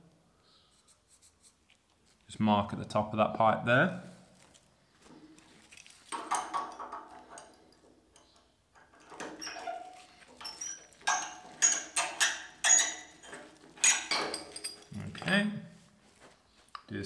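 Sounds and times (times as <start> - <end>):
metallic clinks and taps: 5.6 - 9.6, 10.3 - 15.3
pipe scraping: 8.8 - 15.3.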